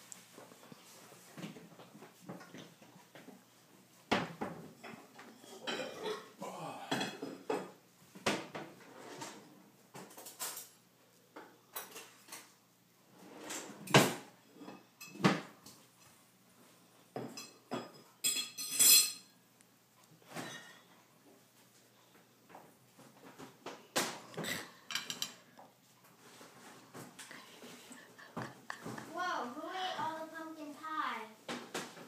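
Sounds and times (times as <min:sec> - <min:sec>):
fork clinking on ceramic plates: 0:17.2 - 0:19.4.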